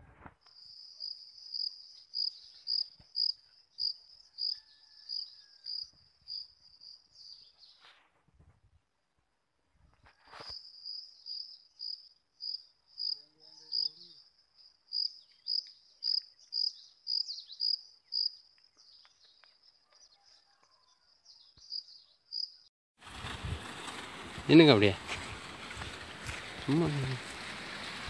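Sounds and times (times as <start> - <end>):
cricket chirping: 0.4 - 7.6, 10.1 - 21.1, 21.7 - 22.6.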